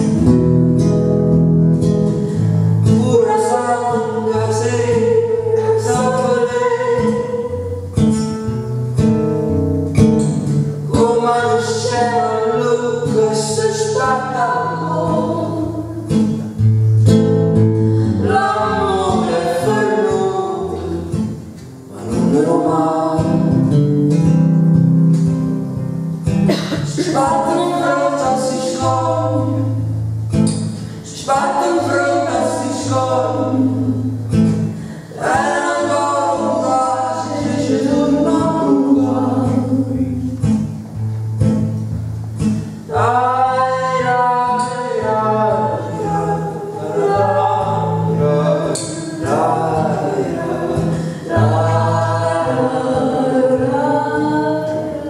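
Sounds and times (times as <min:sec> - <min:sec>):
acoustic guitar: 0:00.0 - 0:55.0
woman singing: 0:02.8 - 0:07.8, 0:10.9 - 0:16.4, 0:18.1 - 0:21.3, 0:26.7 - 0:29.9, 0:31.0 - 0:34.2, 0:35.0 - 0:40.4, 0:42.9 - 0:55.0.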